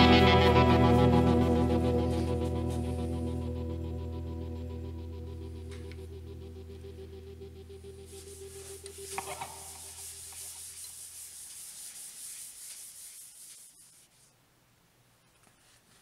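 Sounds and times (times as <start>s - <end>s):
paper towel rubbing spinning wood: 8.1s - 14.3s.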